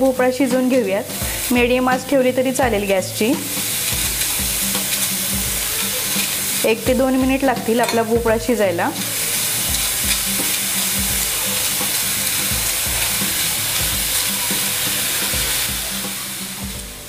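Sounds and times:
pumpkin sizzling in a pan: 0:00.0 - 0:17.0
spoon scraping a pan: 0:03.4 - 0:06.6, 0:07.6 - 0:08.2, 0:08.9 - 0:15.8.

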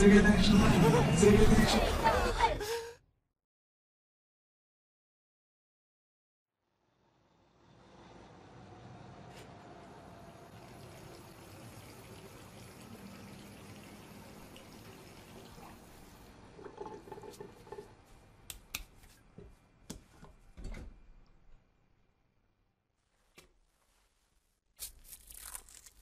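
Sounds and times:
water splashing in a sink: 0:10.3 - 0:18.0.

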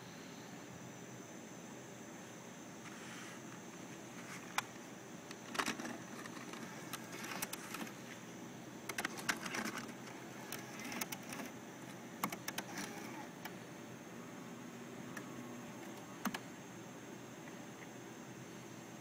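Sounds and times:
steady hiss: 0:00.0 - 0:19.0
tape mechanism clacks: 0:05.3 - 0:08.0, 0:08.9 - 0:13.6.

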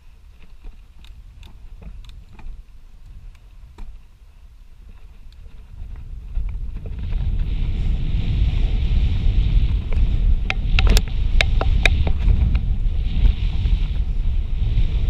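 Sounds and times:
bike clicks and rattles: 0:00.0 - 0:07.5, 0:09.5 - 0:14.0
bike tyres rolling on dirt: 0:00.0 - 0:15.0
wind buffeting microphone: 0:00.0 - 0:15.0.

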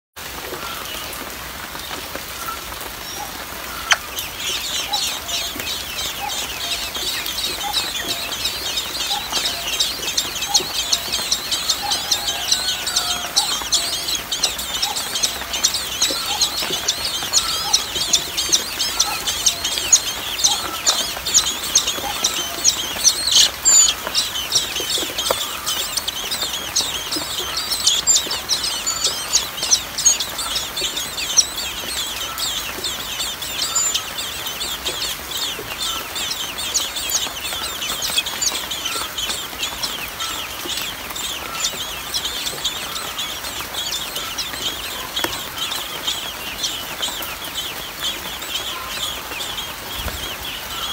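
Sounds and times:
soft low bird calls: 0:02.3 - 0:50.9
nestlings cheeping: 0:03.7 - 0:49.5.

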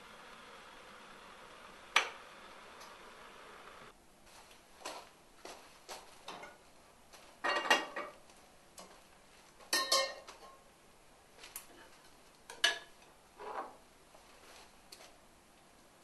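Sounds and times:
metal pans clanking on hob: 0:07.4 - 0:08.2, 0:09.7 - 0:10.6, 0:12.5 - 0:13.8.

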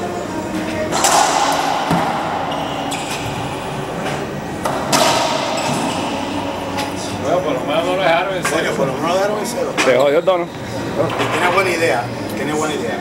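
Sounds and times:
racquetball hits echoing: 0:00.9 - 0:07.2.

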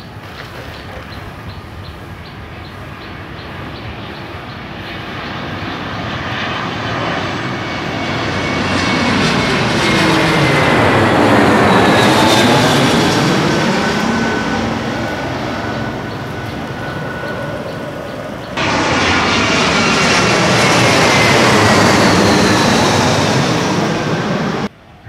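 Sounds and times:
jet engine roar overhead: 0:00.0 - 0:25.0.

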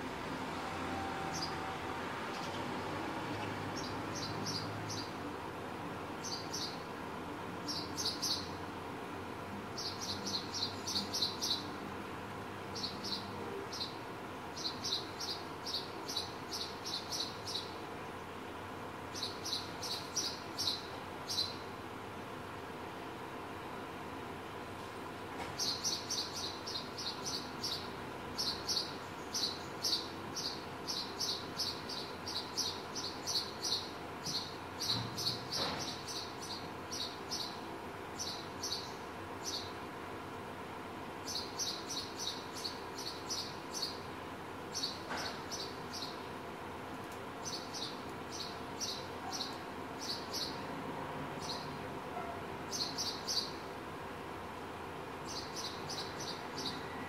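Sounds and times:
sparrow chirping: 0:03.8 - 0:05.1, 0:06.2 - 0:06.8, 0:07.7 - 0:08.6, 0:09.8 - 0:11.7, 0:12.8 - 0:14.0, 0:14.6 - 0:17.8, 0:19.1 - 0:21.6, 0:25.6 - 0:37.6, 0:38.2 - 0:39.8, 0:41.2 - 0:44.1, 0:44.7 - 0:46.2, 0:47.4 - 0:50.6, 0:51.4 - 0:51.8, 0:52.7 - 0:53.6, 0:55.2 - 0:56.8.

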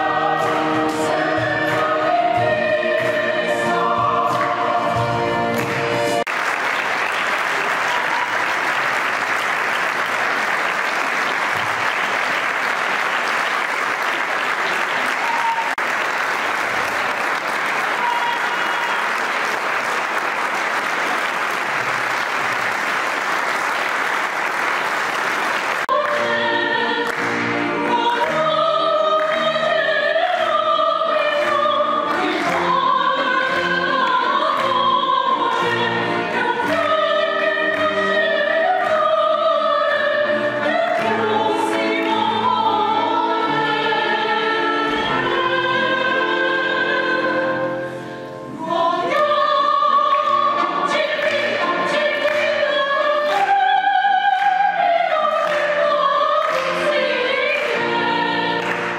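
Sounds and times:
choir singing over a beat: 0:00.0 - 0:06.2, 0:25.9 - 0:58.9
audience applauding: 0:05.4 - 0:26.4, 0:27.0 - 0:29.6, 0:50.1 - 0:58.9.

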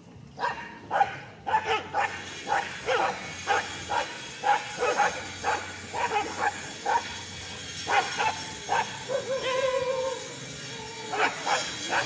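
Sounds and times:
dog barking: 0:00.4 - 0:07.1, 0:07.9 - 0:09.7, 0:11.1 - 0:12.0.

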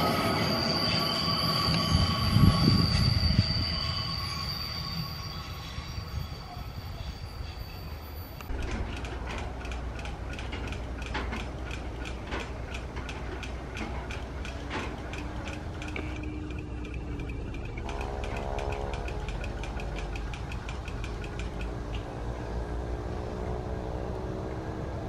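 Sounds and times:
train wheels squealing: 0:00.0 - 0:08.5, 0:13.4 - 0:21.7
diesel locomotive rumble: 0:00.0 - 0:25.0
locomotive engine drone: 0:00.0 - 0:25.0
sharp regular clicking: 0:08.4 - 0:21.9.

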